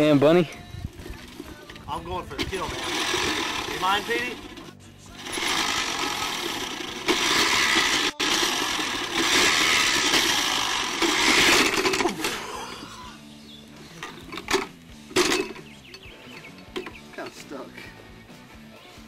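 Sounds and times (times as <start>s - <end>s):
push reel mower whirring: 1.0s - 12.6s, 14.0s - 17.4s.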